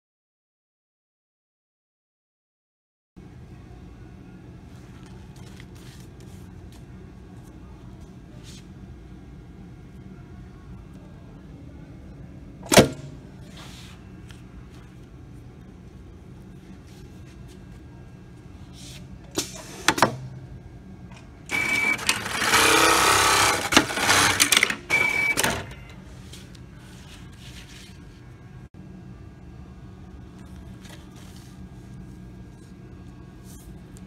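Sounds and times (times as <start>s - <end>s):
steady low hum: 3.2s - 34.0s
sewing machine stitching: 21.5s - 25.3s.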